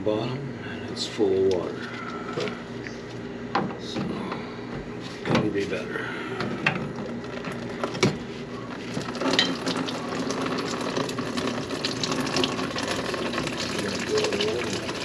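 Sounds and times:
water pouring from drain pipe: 8.8s - 15.0s.

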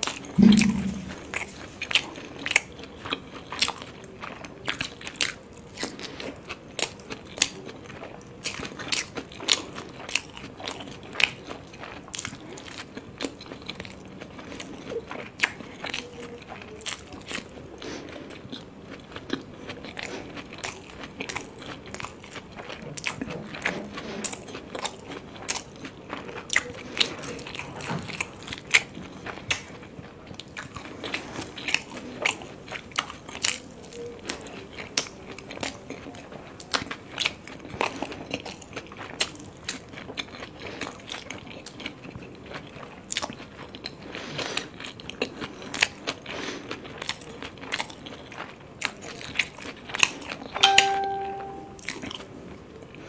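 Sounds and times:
person chewing with wet smacks: 0.0s - 50.6s.

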